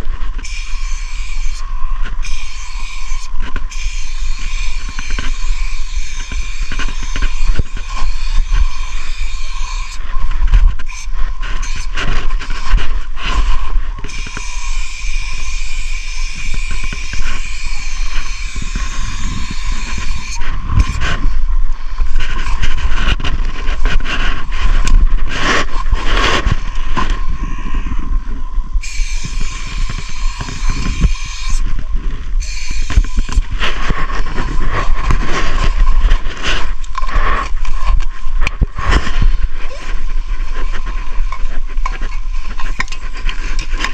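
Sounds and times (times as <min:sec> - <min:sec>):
spray-paint can hissing: 0:00.5 - 0:01.6, 0:02.2 - 0:07.4, 0:14.4 - 0:20.9, 0:28.8 - 0:31.6, 0:32.4 - 0:33.2.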